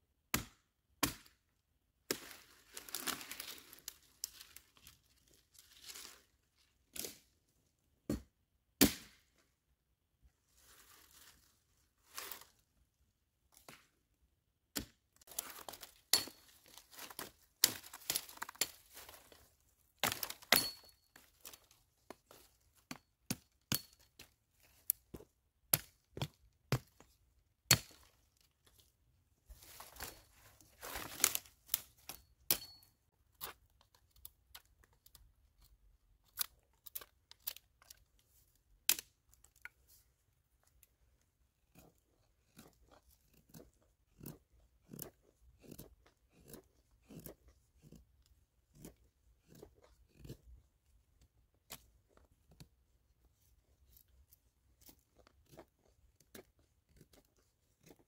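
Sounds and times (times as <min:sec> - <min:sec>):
branches snapping: 0:15.2 - 0:19.4, 0:20.0 - 0:20.8, 0:30.8 - 0:32.8.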